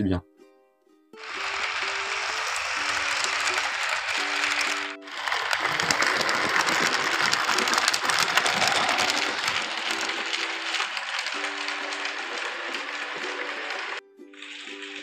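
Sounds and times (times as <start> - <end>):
plucked-string background music: 0.0 - 15.0
model train wheels clattering on track: 1.2 - 15.0.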